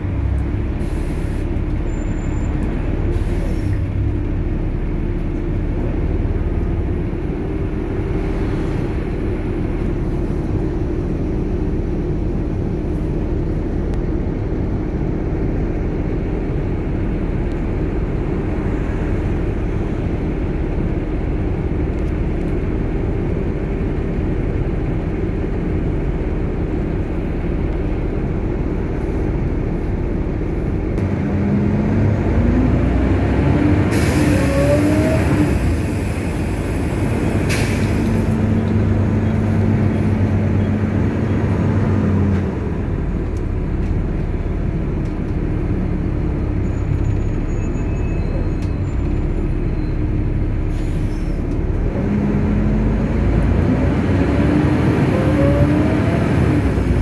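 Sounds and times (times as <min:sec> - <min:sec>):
bus engine drone: 0:00.0 - 0:57.0.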